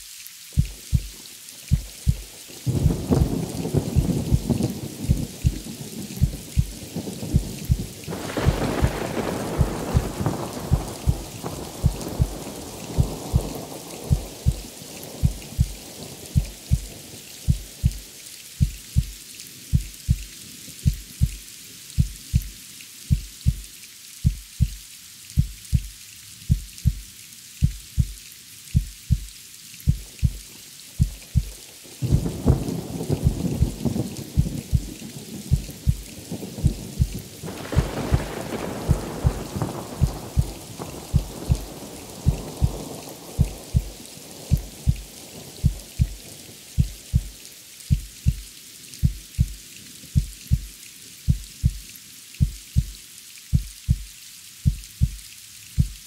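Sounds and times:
steady rain: 0:00.0 - 0:56.0
heartbeat thumps: 0:00.6 - 0:15.8, 0:16.4 - 0:18.0, 0:18.6 - 0:21.4, 0:22.0 - 0:22.5, 0:23.1 - 0:24.8, 0:25.4 - 0:27.0, 0:27.6 - 0:28.2, 0:28.8 - 0:29.3, 0:29.9 - 0:30.4, 0:31.0 - 0:34.9, 0:35.5 - 0:37.2, 0:37.8 - 0:46.2, 0:46.8 - 0:49.6, 0:50.2 - 0:50.7, 0:51.3 - 0:51.8, 0:52.4 - 0:55.2, 0:55.8 - 0:56.0
thunder rolling: 0:02.0 - 0:05.6, 0:06.2 - 0:15.8, 0:31.0 - 0:45.0.

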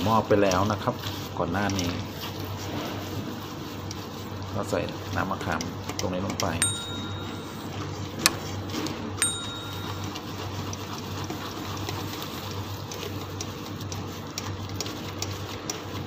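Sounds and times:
metal strainer tapping pot: 0:06.3 - 0:08.4, 0:09.2 - 0:10.7.

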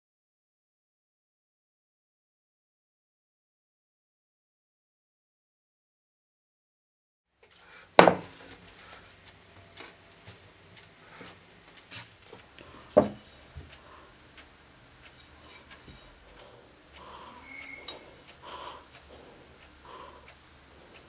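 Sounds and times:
cleaver knocking on bench: 0:08.0 - 0:08.3, 0:13.0 - 0:13.2
small metal taps and clinks: 0:12.8 - 0:13.8.

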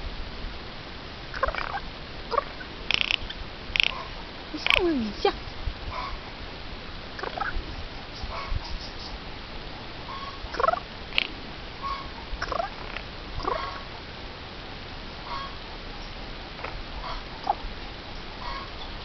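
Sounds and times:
jay calling: 0:01.4 - 0:06.2, 0:10.1 - 0:14.0.

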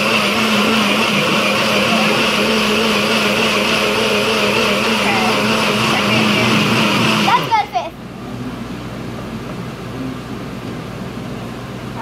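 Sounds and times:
blender running: 0:00.0 - 0:07.9.

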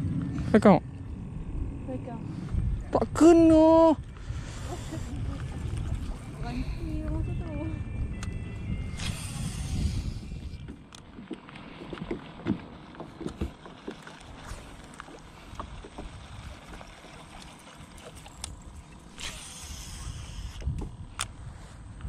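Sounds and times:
water and hull noise: 0:00.0 - 0:22.0
rod and reel clicks: 0:08.2 - 0:12.1, 0:13.2 - 0:21.4
short hiss: 0:09.0 - 0:10.2.

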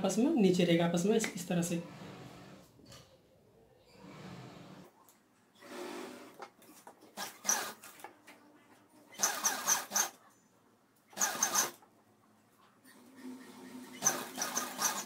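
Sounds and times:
sewing machine stitching: 0:05.6 - 0:08.0, 0:09.1 - 0:10.2, 0:11.1 - 0:11.8, 0:12.8 - 0:15.0.

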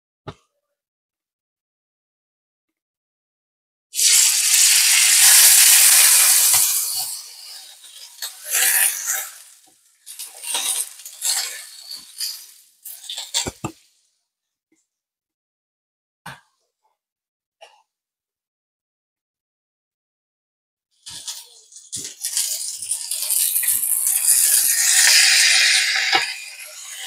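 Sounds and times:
steak sizzling in a frying pan: 0:04.0 - 0:13.4, 0:22.2 - 0:27.0.

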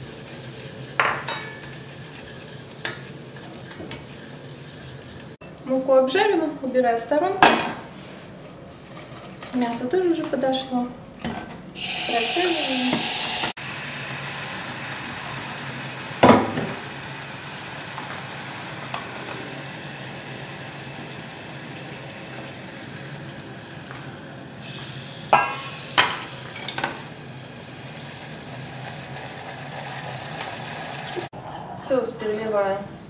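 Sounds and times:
steady sizzling hiss: 0:00.0 - 0:07.2
metal pots clinking: 0:01.0 - 0:01.9, 0:02.8 - 0:04.2, 0:25.3 - 0:27.0.

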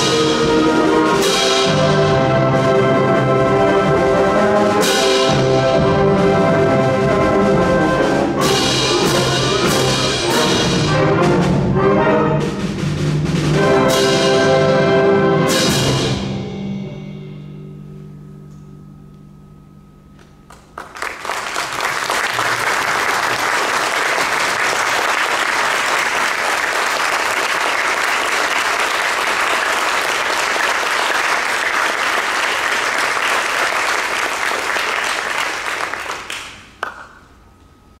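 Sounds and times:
audience applauding: 0:20.5 - 0:37.2.

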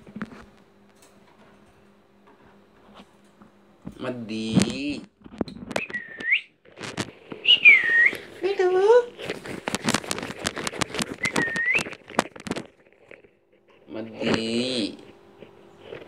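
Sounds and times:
parakeet whistling: 0:05.8 - 0:06.5, 0:07.4 - 0:08.3, 0:11.2 - 0:12.0
parakeet wavering call: 0:07.4 - 0:08.2.

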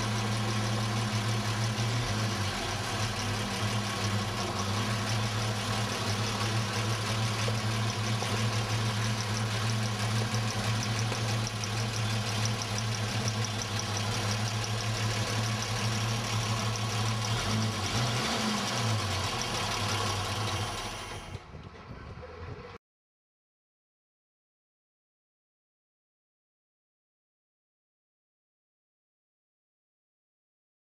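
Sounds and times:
truck engine idling: 0:00.0 - 0:22.8.

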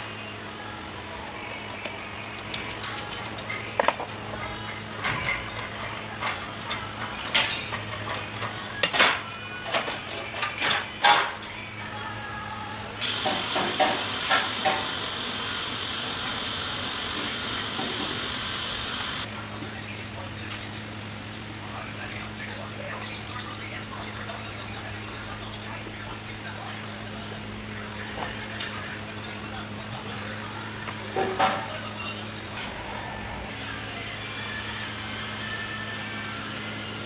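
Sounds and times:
metal clinks and knocks: 0:03.5 - 0:04.2.

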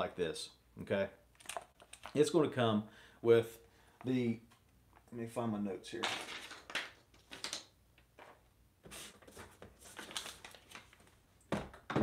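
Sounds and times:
paper rustling: 0:08.2 - 0:11.2.

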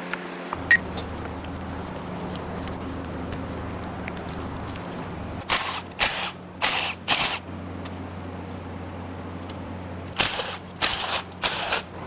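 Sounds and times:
fans humming: 0:00.0 - 0:12.0
cordless power tool bursts: 0:10.2 - 0:11.9.

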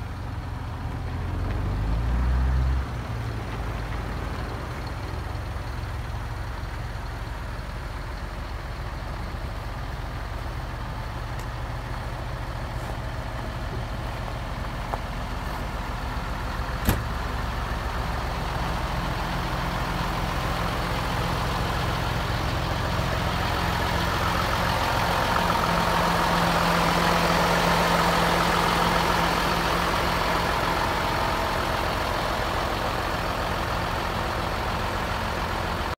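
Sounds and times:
truck diesel engine idling: 0:00.0 - 0:02.2, 0:02.8 - 0:36.0.

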